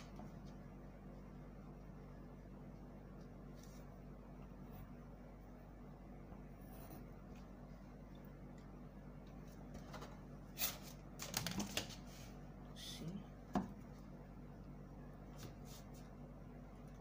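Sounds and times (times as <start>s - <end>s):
paper rustling: 10.6s - 12.3s.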